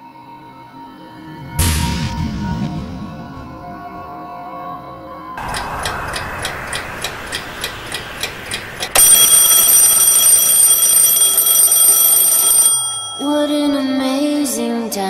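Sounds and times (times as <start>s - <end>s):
alarm clock ringing: 7.3s - 14.0s.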